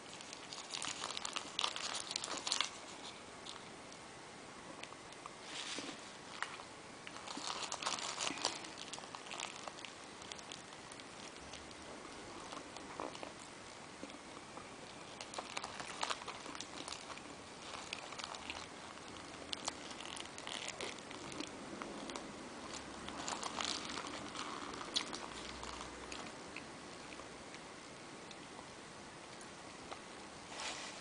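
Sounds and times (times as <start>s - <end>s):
paper napkin crinkling: 0.0s - 3.6s, 5.4s - 11.8s, 15.0s - 26.2s
person chewing: 7.0s - 27.6s.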